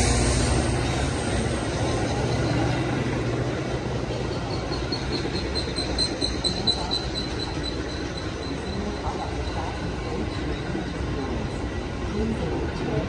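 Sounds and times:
train rolling with low rumble: 0.0s - 13.0s.

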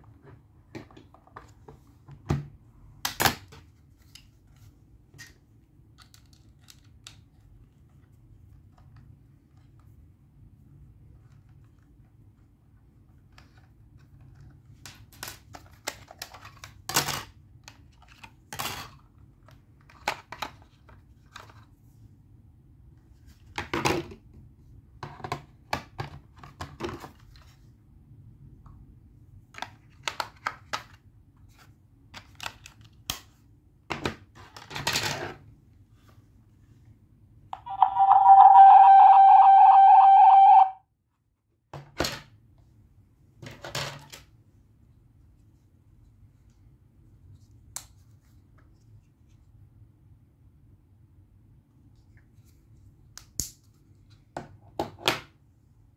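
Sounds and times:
rapidly pulsing electronic beep: 37.7s - 40.7s.

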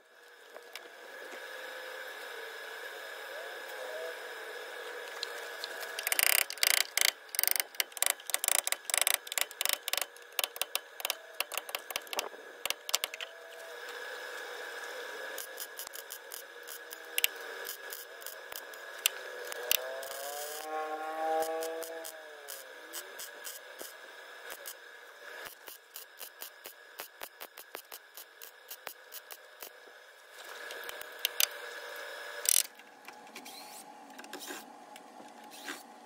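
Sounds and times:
welding arc crackling: 5.5s - 13.3s, 15.3s - 20.7s, 21.3s - 24.8s, 25.4s - 29.8s.

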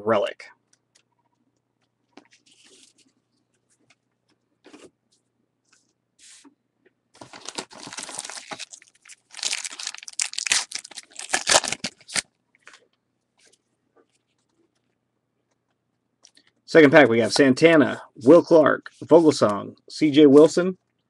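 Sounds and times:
foil wrapper tearing and crinkling: 7.2s - 12.2s.

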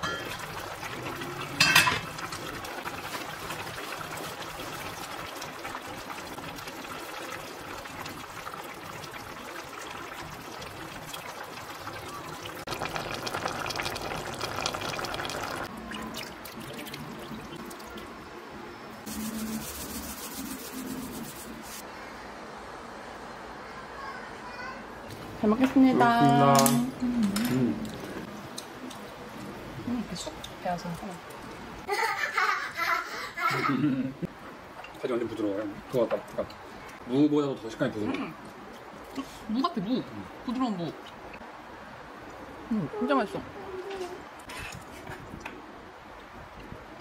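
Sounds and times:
stew simmering and bubbling: 0.0s - 21.9s, 25.1s - 31.9s, 34.2s - 47.0s
metal pot lid clanking: 1.6s - 2.2s.

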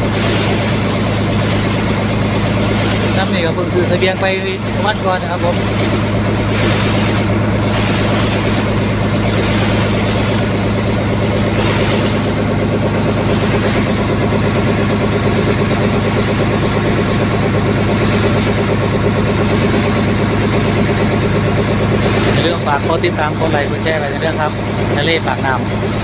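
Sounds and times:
boat engine droning: 0.0s - 26.0s.

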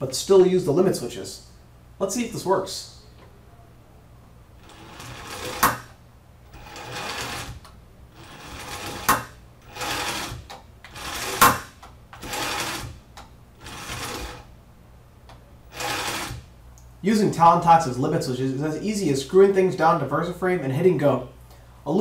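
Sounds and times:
small electric gearmotor running: 4.6s - 5.9s, 6.5s - 13.0s, 13.6s - 14.5s, 15.7s - 16.5s.

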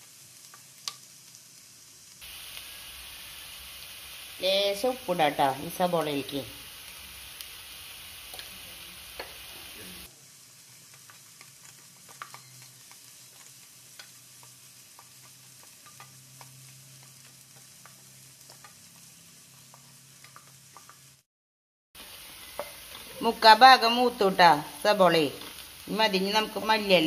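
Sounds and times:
onions sizzling in a pan: 0.0s - 21.3s, 22.0s - 27.0s.

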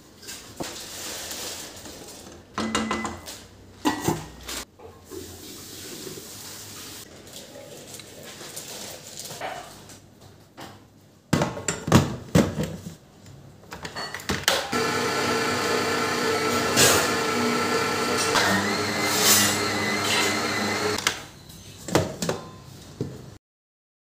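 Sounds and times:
stand mixer motor kneading dough: 14.7s - 21.0s.

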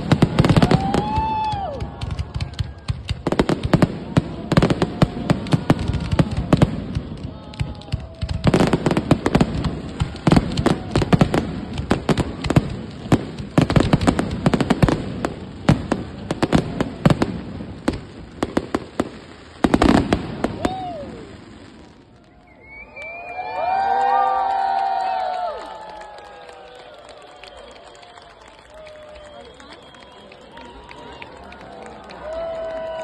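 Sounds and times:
fireworks bangs and crackling: 0.0s - 22.6s.

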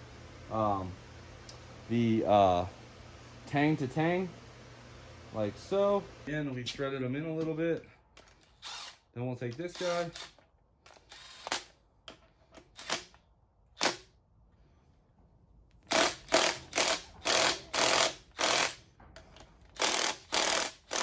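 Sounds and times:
ratchet bursts: 8.4s - 11.8s, 12.6s - 13.2s, 13.8s - 14.1s, 15.9s - 18.9s, 19.8s - 21.0s
ratchet clicks: 19.8s - 21.0s.

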